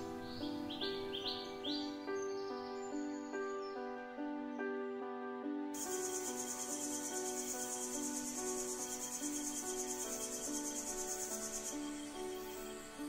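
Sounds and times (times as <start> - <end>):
soft melody of held notes: 0.0 - 13.0
high-pitched insect trill: 5.8 - 13.0.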